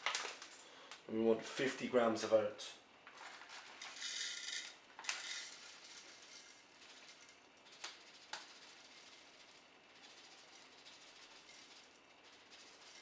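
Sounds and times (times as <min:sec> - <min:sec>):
oats trickling into plastic beaker: 0:03.1 - 0:13.0.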